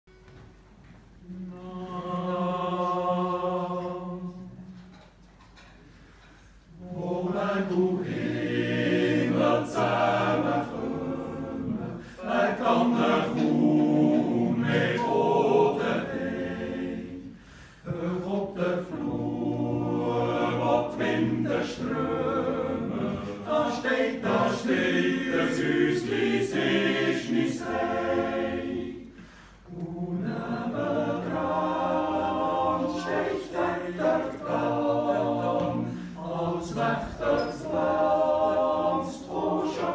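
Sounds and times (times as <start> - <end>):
men's choir yodeling: 6.8 - 17.3, 17.9 - 29.1, 29.7 - 39.9.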